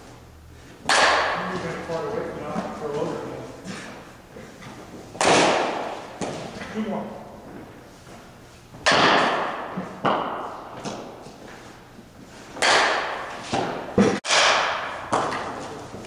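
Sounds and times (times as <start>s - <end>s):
bat hitting balls with echo: 0.8s - 3.4s, 5.1s - 6.8s, 8.8s - 11.3s, 12.5s - 16.0s.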